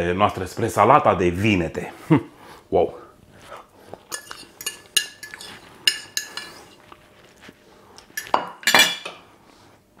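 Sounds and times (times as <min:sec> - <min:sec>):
fork scraping on a ceramic plate: 0:04.1 - 0:06.9
plate clattering on a counter: 0:08.2 - 0:09.2.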